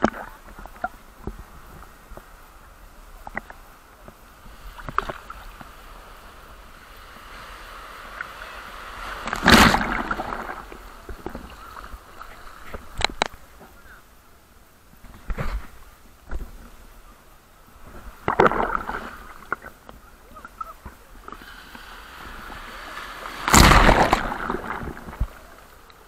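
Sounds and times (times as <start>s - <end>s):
sea waves crashing: 3.8s - 14.0s, 17.7s - 26.0s
short sharp splashes: 9.0s - 10.8s, 22.4s - 25.4s.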